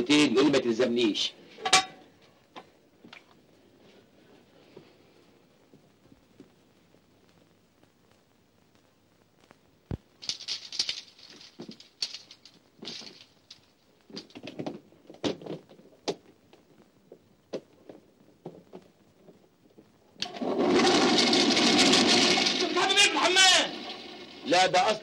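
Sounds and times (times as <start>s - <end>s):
clothes rustling: 10.0s - 16.7s.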